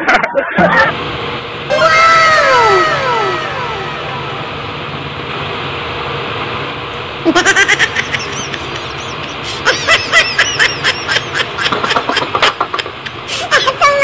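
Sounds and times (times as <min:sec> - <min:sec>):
man laughing: 0:07.3 - 0:13.8.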